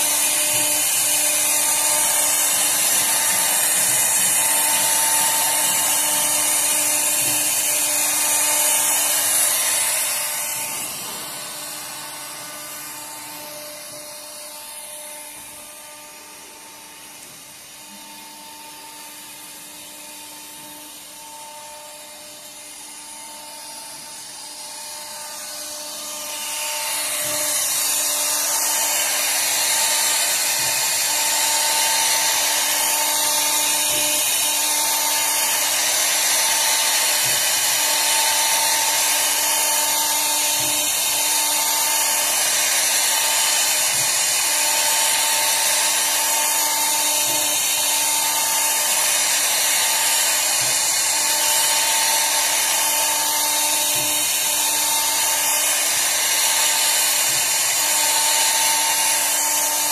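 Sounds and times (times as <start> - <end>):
cnc router cutting with whine: 0.0 - 59.9.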